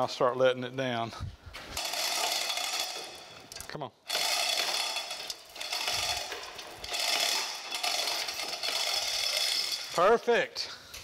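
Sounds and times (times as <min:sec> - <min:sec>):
chain hoist running: 0:01.8 - 0:10.2.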